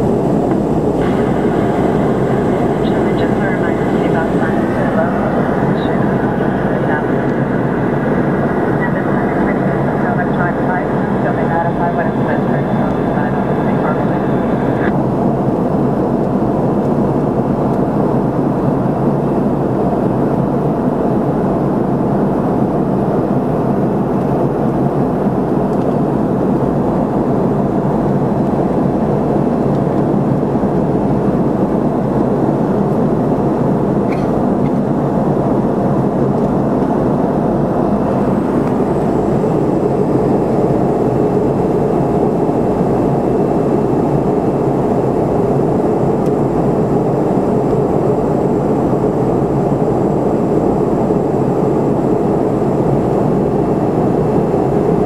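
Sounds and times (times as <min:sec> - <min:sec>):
faint high whine: 0:00.0 - 0:15.0
jet engine cabin drone: 0:00.0 - 0:55.0.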